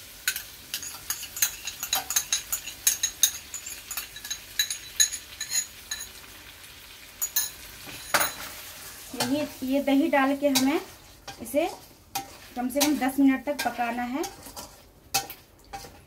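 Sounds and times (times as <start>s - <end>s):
spoon clinking against ceramic bowl: 0.3s - 6.2s, 7.2s - 8.5s.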